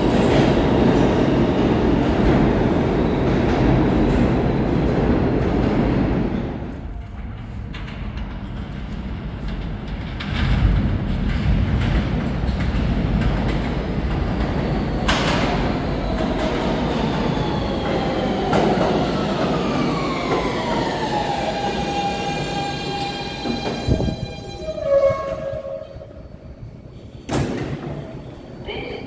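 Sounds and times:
wheel and track rumble: 0.0 - 26.0
train clunking to rest: 27.2 - 28.2.

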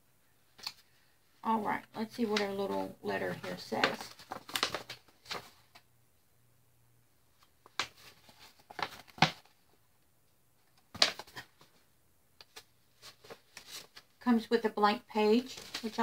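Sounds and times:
paper rustling and crackling: 2.2 - 5.8, 7.6 - 9.6, 10.7 - 11.8, 12.4 - 14.2, 15.3 - 16.0.

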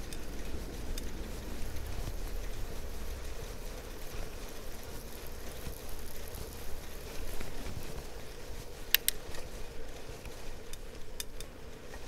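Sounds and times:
bicycle road rumble: 0.0 - 12.0
sharp clicks: 8.9 - 9.2.

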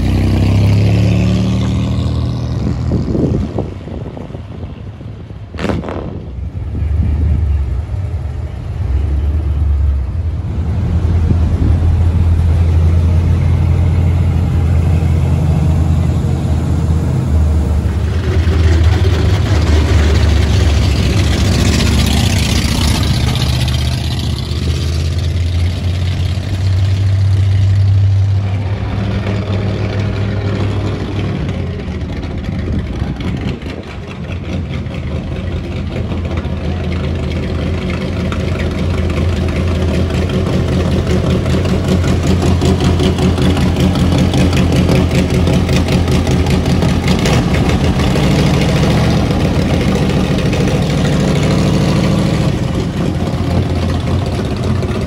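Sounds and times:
deep engine rumble: 0.0 - 55.0
car engine idling: 3.4 - 55.0.

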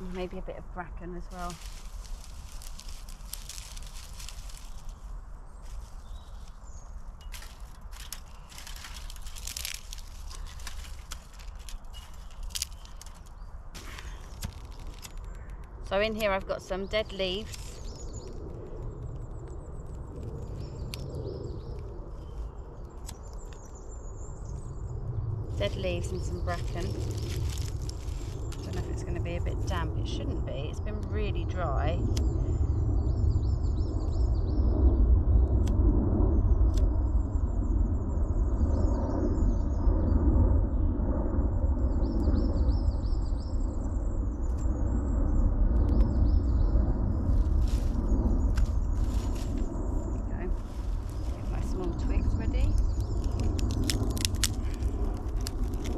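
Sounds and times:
dry leaves crackling when crushed: 0.0 - 23.9, 25.2 - 32.4, 47.0 - 55.9
steady low rumble: 0.0 - 55.9.

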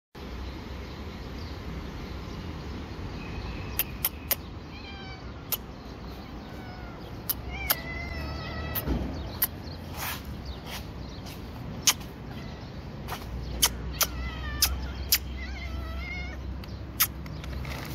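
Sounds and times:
cat meowing: 4.6 - 5.6, 6.3 - 8.9, 13.9 - 16.5.

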